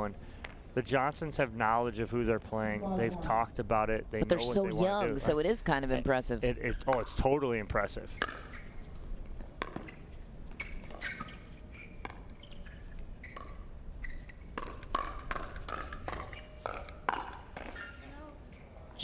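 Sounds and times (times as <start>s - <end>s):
paddles hitting plastic ball: 9.5s - 10.0s, 14.6s - 17.8s.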